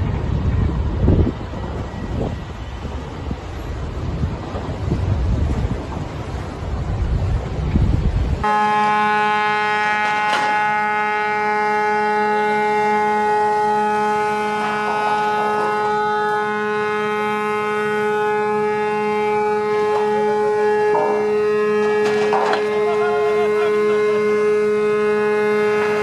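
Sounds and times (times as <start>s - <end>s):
gusty wind on microphone: 0.0s - 22.6s
ship's horn long blast: 8.4s - 26.0s.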